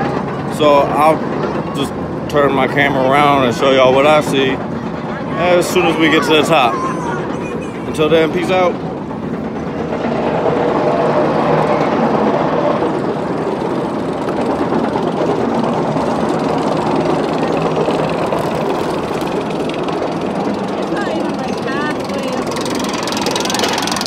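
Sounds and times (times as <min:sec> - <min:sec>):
roller coaster lift chain clatter: 0:00.0 - 0:24.0
rapid fine ticking: 0:12.2 - 0:24.0.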